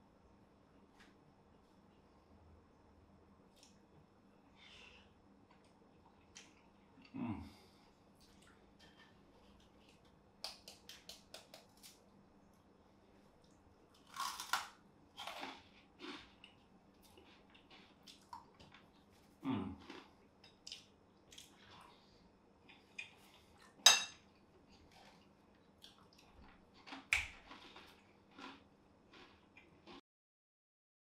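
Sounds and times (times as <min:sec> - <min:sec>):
soft chewing: 0:03.5 - 0:30.0
crunchy bites of toast: 0:14.0 - 0:18.8, 0:19.7 - 0:20.1, 0:25.9 - 0:30.0
fork clinking on plate: 0:23.9 - 0:24.2.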